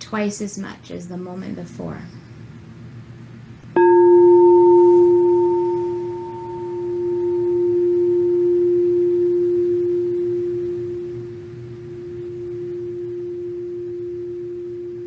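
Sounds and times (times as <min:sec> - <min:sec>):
singing bowl ringing: 0:03.7 - 0:15.0.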